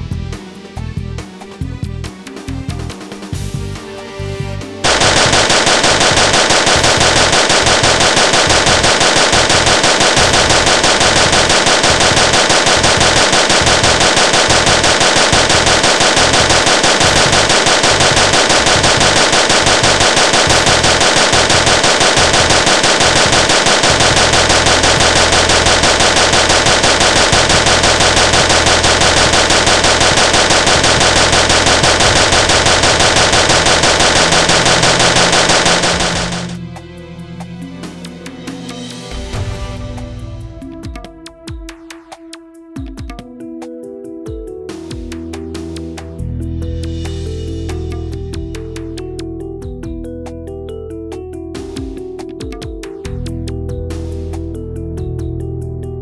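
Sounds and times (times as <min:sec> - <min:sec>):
machine gun firing: 0:04.8 - 0:36.6.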